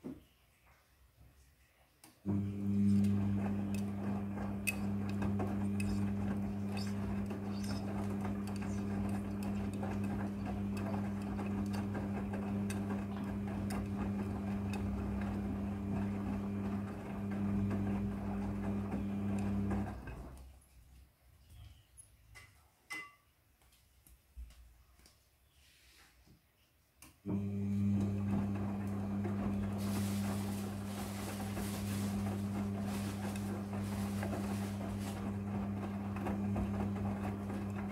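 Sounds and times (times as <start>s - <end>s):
washing machine motor hum: 2.3s - 20.4s, 27.2s - 37.9s
laundry tumbling with knocks: 28.2s - 37.9s.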